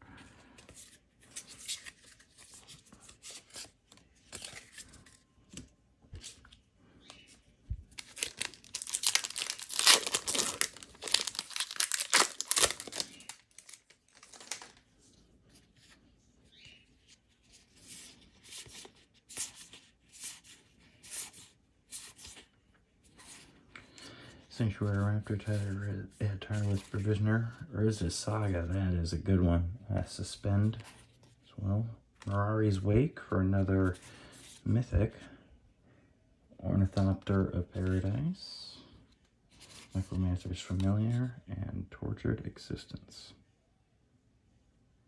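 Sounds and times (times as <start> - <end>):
foil wrapper tearing and crinkling: 8.0 - 14.8.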